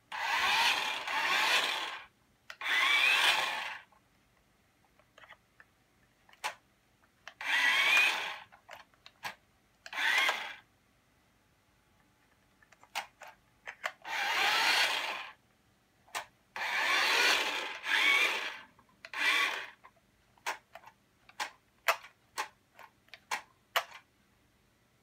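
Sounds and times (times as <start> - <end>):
toy truck electric motor whirring: 0.1 - 3.9, 7.3 - 8.5, 9.9 - 10.6, 13.8 - 15.4, 16.1 - 19.8.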